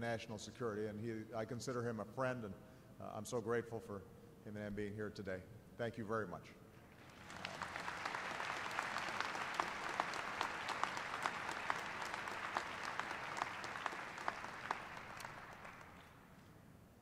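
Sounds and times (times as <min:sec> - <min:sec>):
audience applauding: 0:06.9 - 0:16.4.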